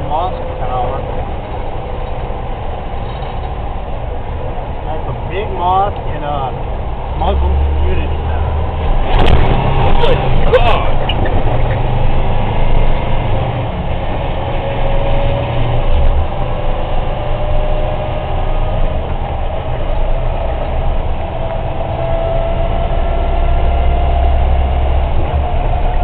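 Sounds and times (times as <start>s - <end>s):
road noise: 0.0s - 26.0s
truck engine rumble: 0.0s - 26.0s.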